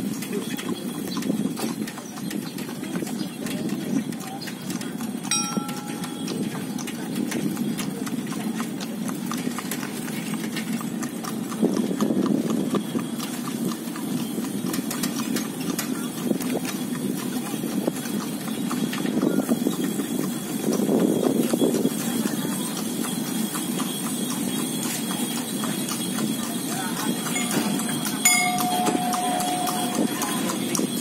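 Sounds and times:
rickshaw frame clicks and rattles: 0:00.0 - 0:21.7
low rumble of wheels on asphalt: 0:00.0 - 0:31.0.

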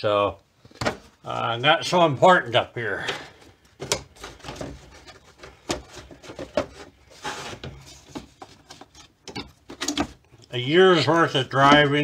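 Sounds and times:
rustling scrape: 0:04.2 - 0:09.1.

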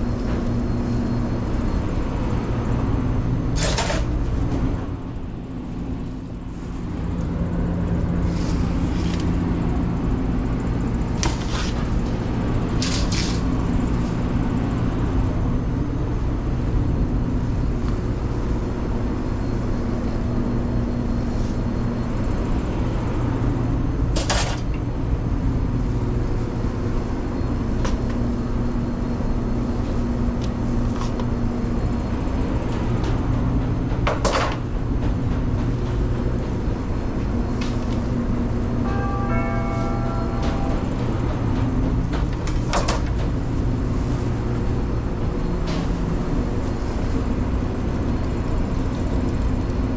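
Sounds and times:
kitchen equipment humming: 0:00.0 - 0:15.5.

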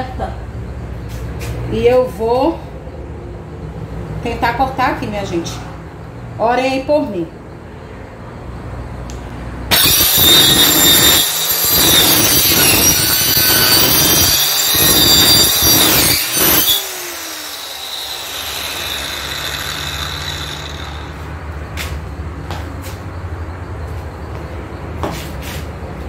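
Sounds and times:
circular saw running freely: 0:09.7 - 0:21.3
circular saw cutting wood: 0:09.7 - 0:21.5.

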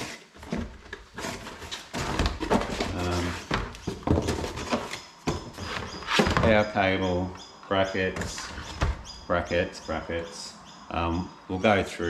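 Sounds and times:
parts rustling and clattering: 0:00.0 - 0:06.8.

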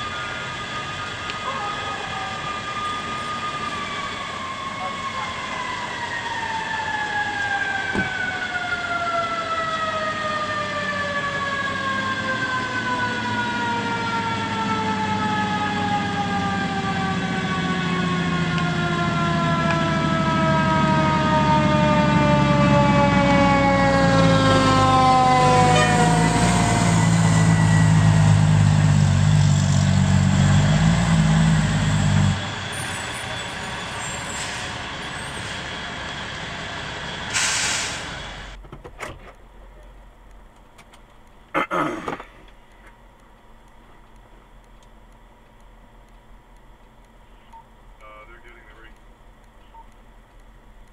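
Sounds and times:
fire engine siren winding down: 0:00.0 - 0:38.6.

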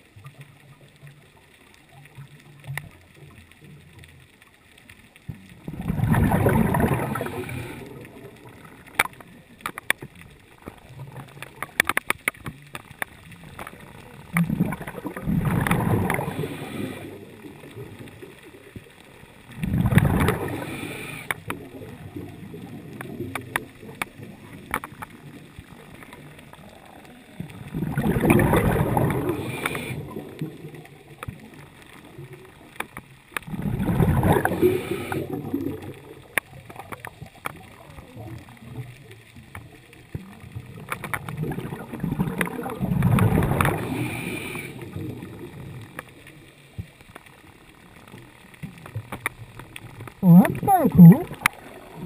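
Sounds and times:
diver bubbling exhalations: 0:05.6 - 0:08.4, 0:19.6 - 0:21.1, 0:26.7 - 0:30.4, 0:33.5 - 0:35.9, 0:50.2 - 0:52.0.

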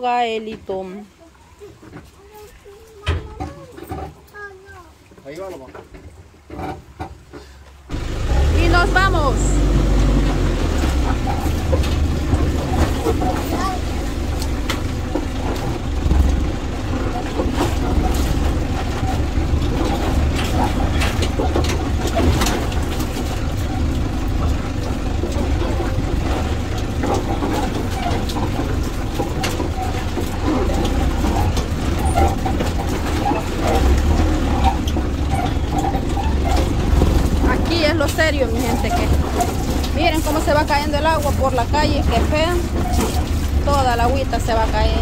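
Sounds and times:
vehicle engine rumble: 0:00.0 - 0:45.0
knocks and rattles: 0:01.8 - 0:04.5, 0:05.4 - 0:45.0.

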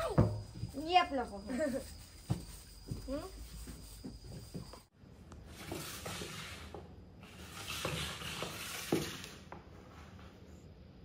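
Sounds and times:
plastic container scraping floor: 0:05.5 - 0:10.2.

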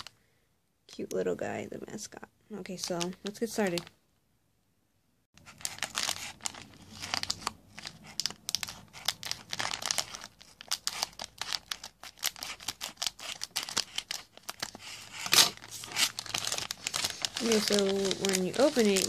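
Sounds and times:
plastic package crinkling: 0:05.4 - 0:19.0
scissors cutting plastic: 0:05.4 - 0:19.0.

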